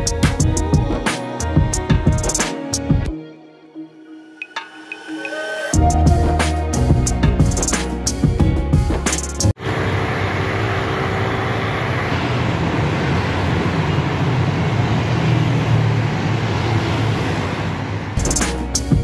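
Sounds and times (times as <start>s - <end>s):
background music: 0.0s - 9.6s, 18.2s - 19.0s
roar of passing vehicles: 9.6s - 18.2s.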